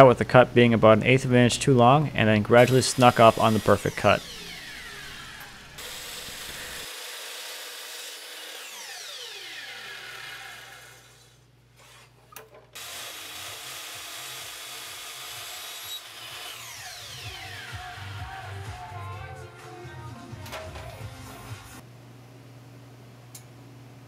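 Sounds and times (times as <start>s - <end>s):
miter saw cutting wood: 2.6s - 12.1s, 12.8s - 19.0s
saw blade winding down: 2.6s - 12.1s, 12.8s - 19.0s.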